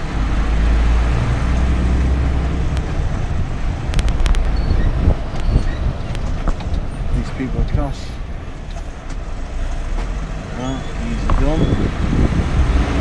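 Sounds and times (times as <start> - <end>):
lorry diesel engine drone: 0.0 - 6.1
road noise: 0.0 - 13.0.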